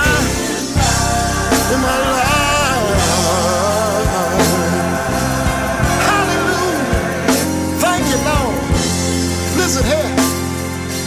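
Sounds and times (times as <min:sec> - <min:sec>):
person singing with vibrato: 0:00.0 - 0:08.7
drum beat: 0:00.0 - 0:10.2
bass line: 0:00.0 - 0:11.0.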